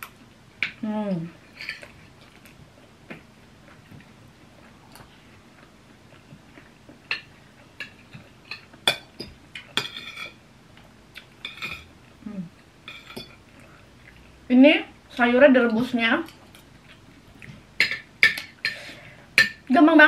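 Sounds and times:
cutlery clinking on ceramic plates: 7.1 - 10.4, 11.4 - 11.9, 12.9 - 13.4.

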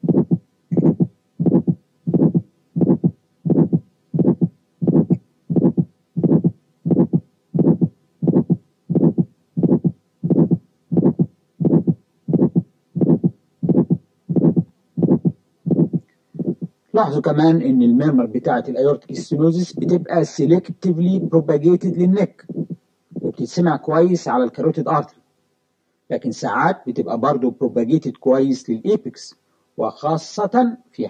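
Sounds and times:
heartbeat with murmur: 0.0 - 16.8, 22.5 - 23.4.

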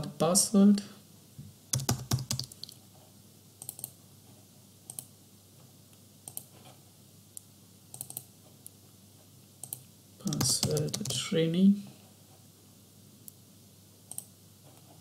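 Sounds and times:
key or mouse clicks: 1.8 - 2.8, 3.6 - 4.0, 8.0 - 8.3, 9.6 - 11.2
keyboard keystrokes: 1.8 - 2.8, 9.6 - 11.2.

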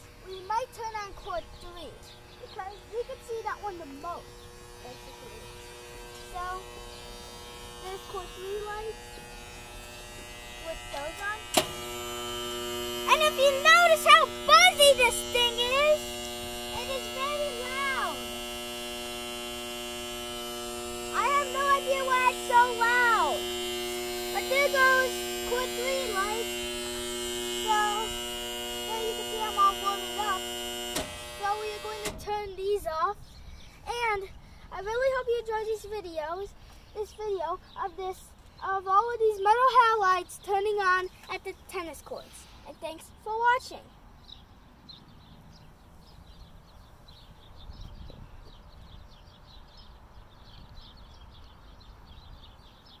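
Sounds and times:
electrical mains hum and buzz: 0.0 - 41.0
small birds chirping: 0.0 - 53.0
child's voice: 0.2 - 5.4, 6.2 - 6.7, 7.8 - 9.0, 10.6 - 11.5, 13.0 - 16.0, 16.7 - 18.2, 21.1 - 23.4, 24.3 - 26.5, 27.6 - 28.2, 28.9 - 30.4, 31.4 - 43.9.

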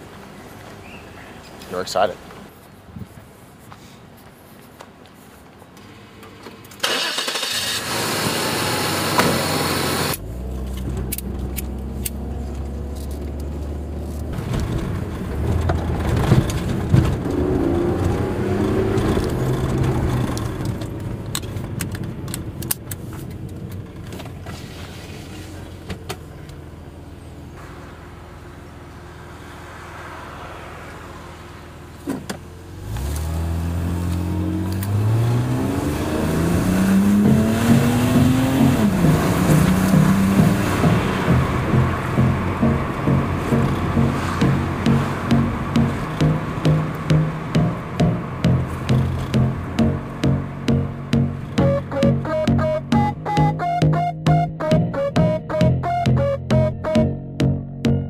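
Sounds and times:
car engine from inside cabin: 7.6 - 22.6, 24.7 - 54.4
loud rushing: 35.3 - 54.0.

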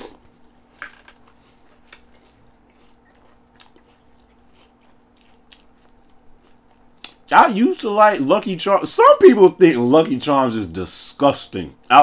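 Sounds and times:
chewing cereal: 0.0 - 7.3.

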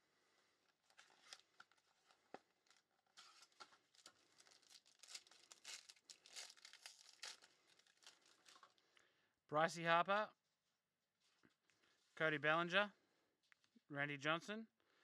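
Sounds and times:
foil wrapper crinkling: 0.8 - 8.8.

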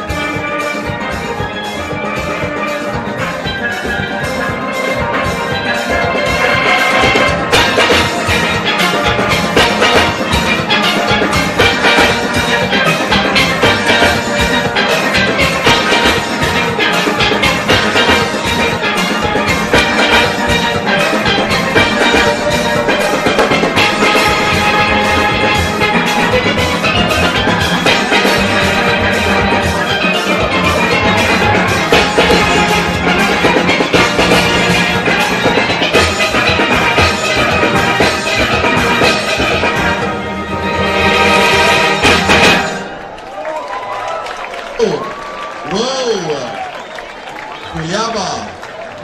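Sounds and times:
steel orchestra playing: 0.0 - 49.0.

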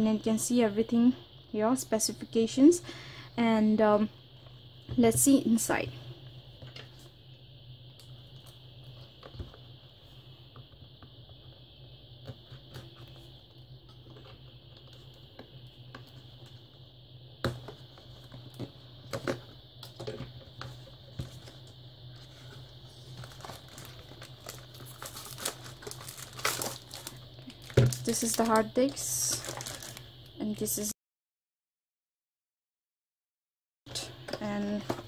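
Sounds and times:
plastic wrapping crinkling: 23.1 - 30.1.

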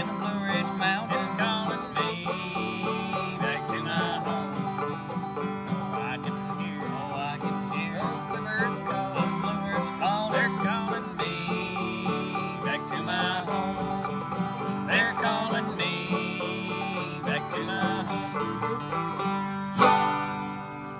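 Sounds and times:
acoustic guitar strumming: 0.0 - 20.9
banjo plucked melody: 0.0 - 20.9.

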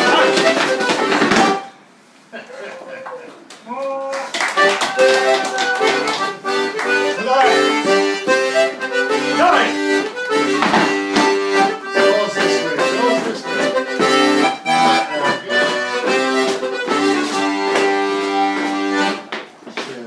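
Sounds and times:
sharp knocks: 0.2 - 1.6, 10.4 - 11.4.

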